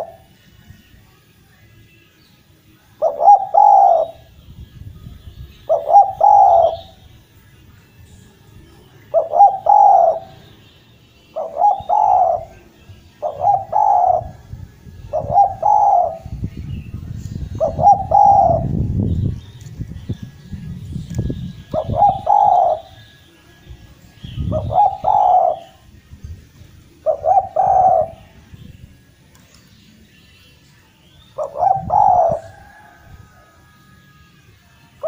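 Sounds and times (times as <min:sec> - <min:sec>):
dove cooing: 0:00.0 - 0:00.3, 0:03.0 - 0:04.3, 0:05.7 - 0:07.0, 0:09.1 - 0:10.5, 0:11.3 - 0:14.4, 0:15.1 - 0:16.4, 0:17.5 - 0:18.8, 0:21.6 - 0:23.1, 0:24.4 - 0:25.8, 0:27.0 - 0:28.3, 0:31.4 - 0:33.7
faint high bird chirps: 0:00.0 - 0:25.9.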